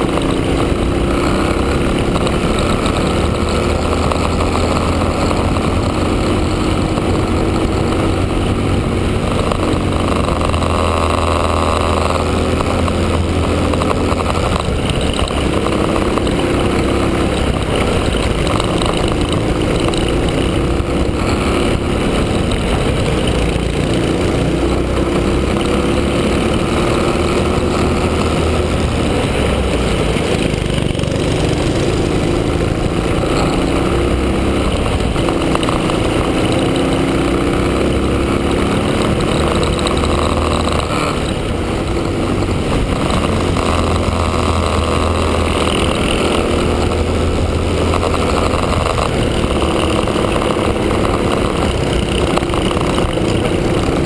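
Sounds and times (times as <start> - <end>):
kart engine racing: 0.0 - 54.0.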